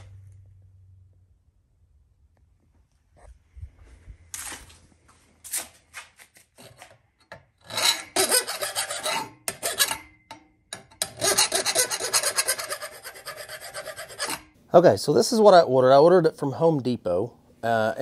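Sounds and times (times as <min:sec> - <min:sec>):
metal file rasping on steel: 0:07.6 - 0:10.2, 0:10.8 - 0:14.5.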